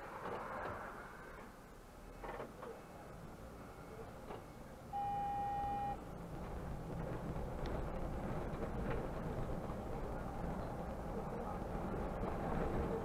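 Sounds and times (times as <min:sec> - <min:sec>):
bus engine and road noise: 0:00.0 - 0:13.0
electronic beep: 0:05.0 - 0:06.0.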